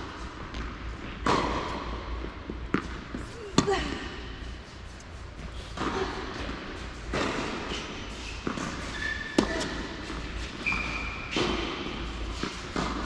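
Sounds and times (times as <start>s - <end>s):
tennis ball bouncing on court: 0.0s - 4.0s, 5.7s - 13.0s
tennis ball struck by rackets: 0.5s - 2.0s, 8.4s - 13.0s
shoes squeaking on court: 6.9s - 13.0s.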